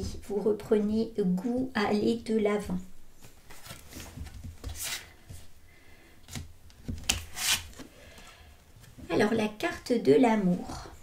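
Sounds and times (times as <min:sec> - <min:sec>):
paper cards rustling and scraping: 0:03.4 - 0:05.4, 0:06.3 - 0:07.9.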